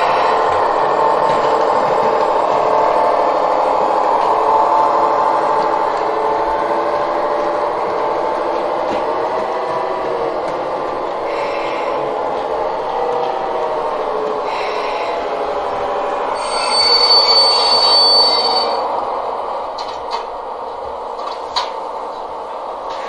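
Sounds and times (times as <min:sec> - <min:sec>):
wheels rolling on rails: 0:00.0 - 0:23.0
model train motors whining: 0:10.5 - 0:18.9.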